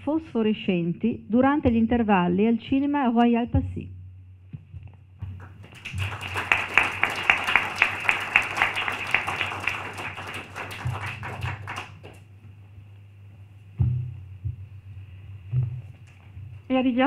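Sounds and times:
audience applauding: 5.4 - 12.2.

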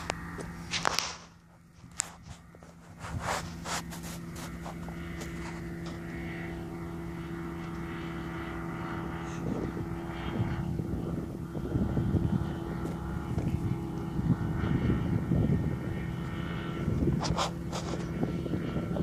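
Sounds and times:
ultralight aircraft engine droning: 0.0 - 19.0.

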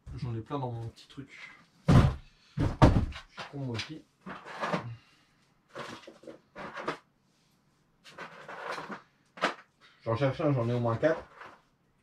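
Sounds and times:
parts clattering and rattling: 5.7 - 7.1, 8.1 - 9.8.

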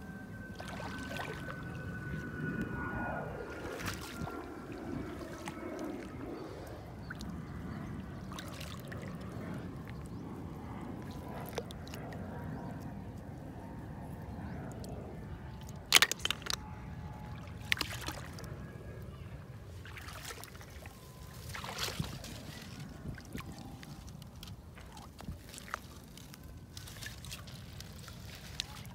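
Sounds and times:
shallow water sloshing: 0.1 - 2.4, 3.4 - 10.1, 15.6 - 18.5, 19.8 - 28.9.

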